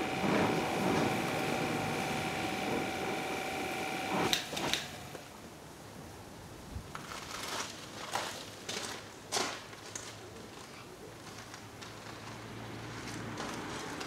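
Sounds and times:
water spraying into bucket: 0.0 - 5.2
pressure washer whine: 0.0 - 5.4.

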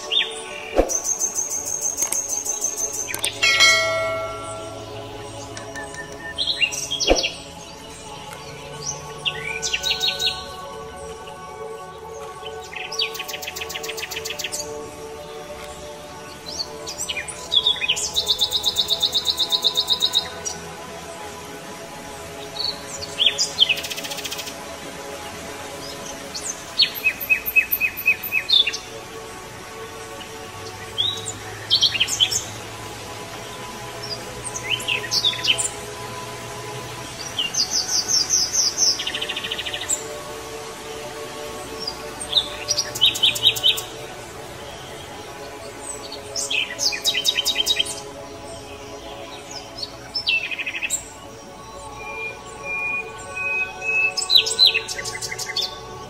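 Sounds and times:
bird chirping trills: 0.0 - 10.6
birds chirping: 0.0 - 56.0
soft background music: 0.0 - 56.0.

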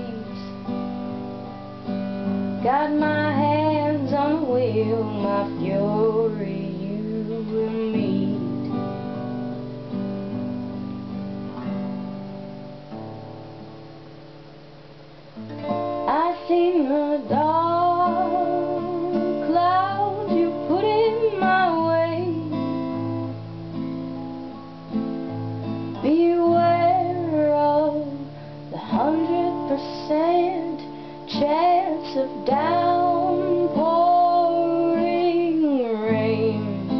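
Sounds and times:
woman singing: 0.0 - 0.9, 2.5 - 9.5, 15.9 - 22.8, 25.9 - 36.9
acoustic guitar playing: 0.0 - 36.9.

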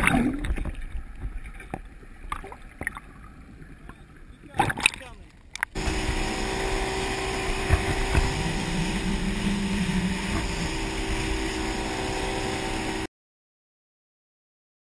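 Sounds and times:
rushing wind and water: 0.0 - 13.1
boat engine drone: 5.7 - 13.1.

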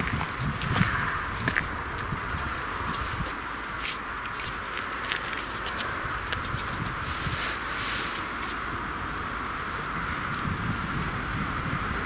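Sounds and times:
steady steam hiss: 7.0 - 10.0.

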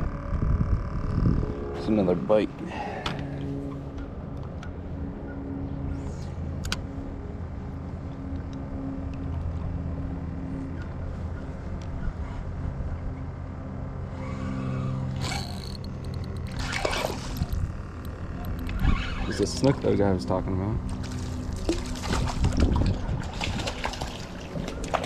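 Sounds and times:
electric motor humming: 0.0 - 3.8, 13.8 - 19.8.

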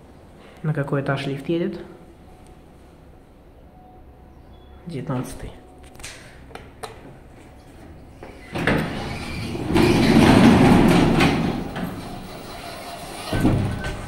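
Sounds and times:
lift doors sliding with rumble: 7.0 - 14.0.

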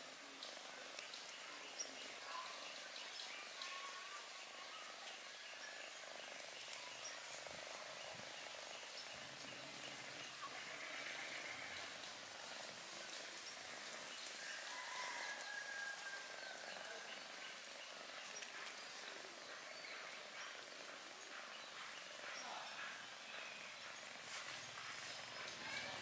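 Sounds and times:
steady hiss: 0.0 - 26.0
faint drawn-out high calls: 2.1 - 5.9.

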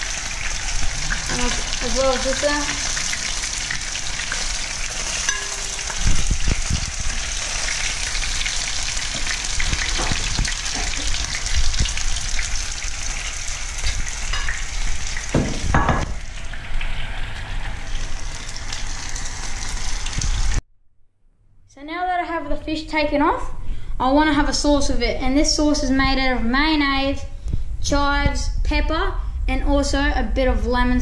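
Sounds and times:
fish sizzling in oil: 0.0 - 20.6
metal tongs clunking: 5.2 - 6.2.

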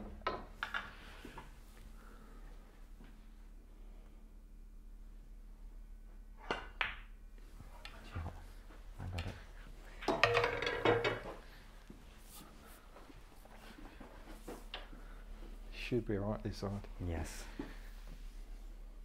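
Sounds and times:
balls knocking on table: 10.1 - 11.3.

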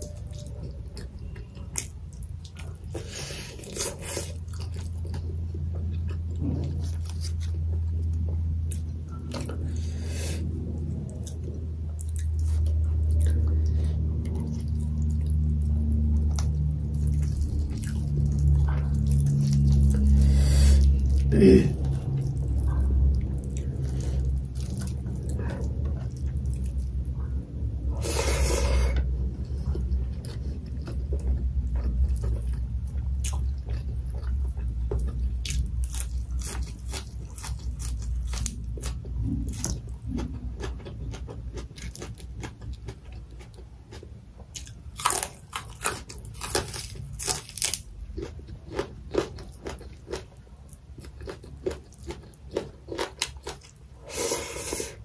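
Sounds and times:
chewing and crunching food: 0.0 - 55.0.

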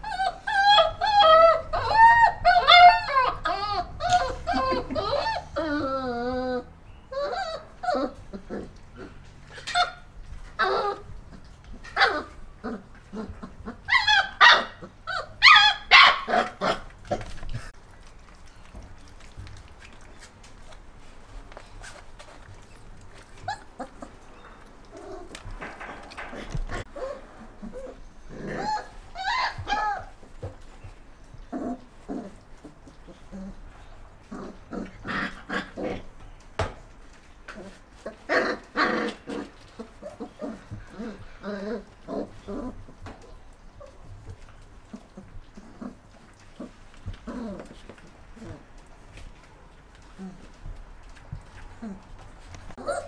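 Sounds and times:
puppy crying: 0.0 - 17.3, 23.3 - 30.3, 52.7 - 53.0
puppies barking and yipping: 0.0 - 33.4, 34.2 - 53.0.

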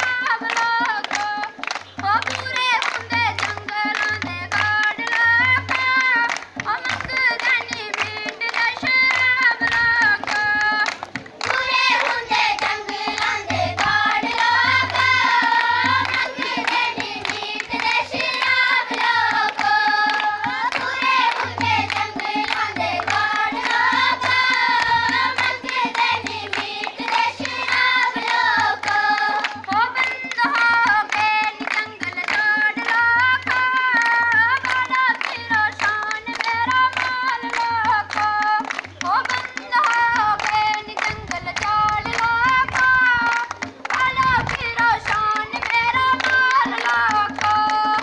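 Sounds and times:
girls singing together: 0.0 - 48.0
barrel drum beating: 8.8 - 34.5.

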